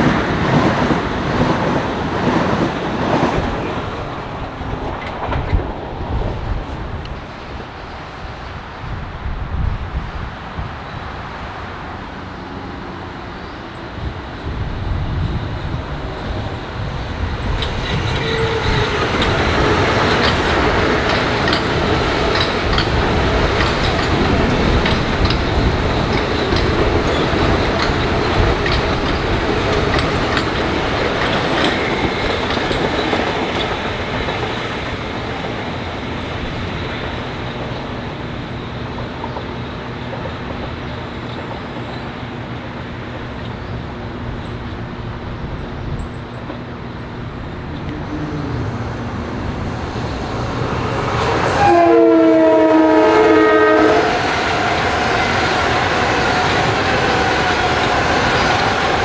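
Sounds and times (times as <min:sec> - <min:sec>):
train wheels on rails: 0:00.0 - 0:59.0
train horn chord: 0:47.8 - 0:49.1, 0:51.4 - 0:54.2.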